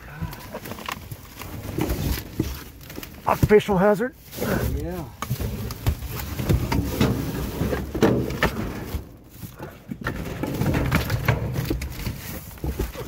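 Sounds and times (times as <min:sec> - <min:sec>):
cardboard boxes shifting: 0:00.0 - 0:13.0
plastic bags rustling: 0:00.1 - 0:09.7
knocks and clatters: 0:05.1 - 0:13.0.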